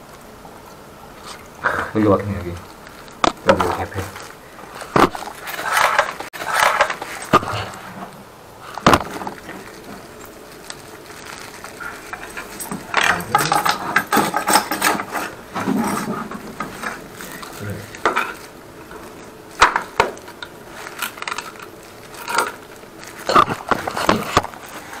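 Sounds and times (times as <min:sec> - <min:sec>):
hoses scraping on tiled floor: 0:01.1 - 0:25.0
hoses knocking and clicking: 0:12.1 - 0:18.4.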